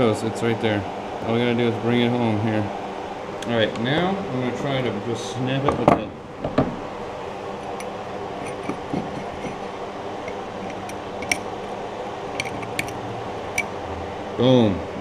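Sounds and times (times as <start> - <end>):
steady low hum: 0.0 - 15.0
pliers clicking on glass bottle: 10.3 - 11.4, 12.4 - 13.0.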